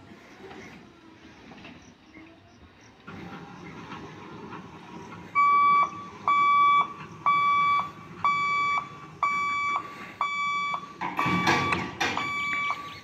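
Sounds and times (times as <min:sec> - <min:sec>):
level crossing warning beeps: 0:05.3 - 0:13.0.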